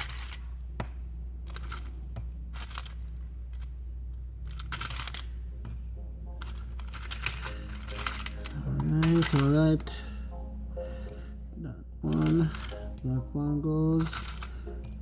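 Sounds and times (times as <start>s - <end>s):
metal components clinking: 0.0s - 3.8s, 4.4s - 9.9s, 12.1s - 13.2s, 13.9s - 15.0s.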